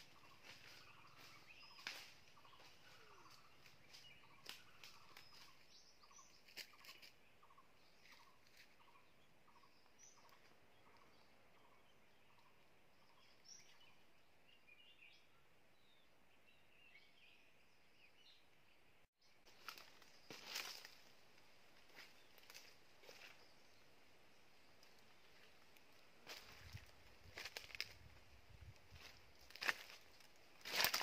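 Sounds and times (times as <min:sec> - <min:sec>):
footsteps in dry leaves: 0:00.0 - 0:07.2, 0:19.5 - 0:23.5, 0:25.0 - 0:31.0
faint forest ambience: 0:00.0 - 0:31.0.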